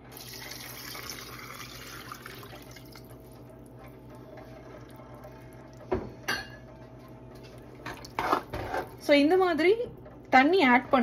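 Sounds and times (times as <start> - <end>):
water pouring into a pot: 0.0 - 3.5.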